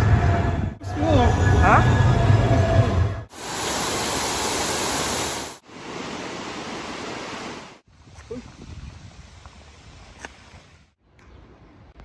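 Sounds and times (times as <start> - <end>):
water cascading into a pool: 3.3 - 7.7.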